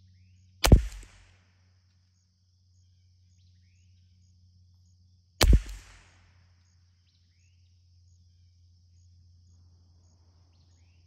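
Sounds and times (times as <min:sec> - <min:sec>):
rifle shots: 0:00.6 - 0:01.4, 0:05.4 - 0:06.3.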